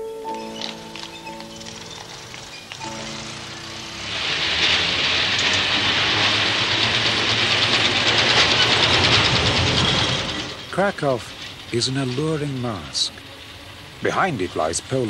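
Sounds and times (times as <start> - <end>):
music: 0.0 - 5.2, 11.7 - 15.0
tram rattling along track: 0.0 - 15.0.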